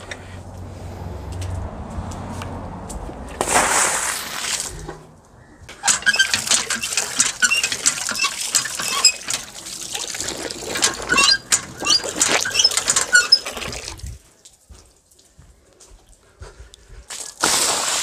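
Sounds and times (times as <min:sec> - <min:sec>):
pump handle clanking and squeaking: 0:05.7 - 0:14.0
water gushing into metal bucket: 0:05.7 - 0:14.2.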